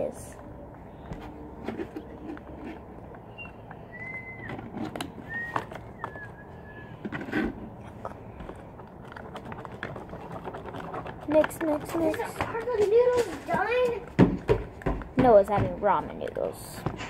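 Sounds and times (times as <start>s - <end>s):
outdoor background noise: 0.0s - 17.0s
bird whistling: 3.2s - 4.6s, 5.2s - 7.0s.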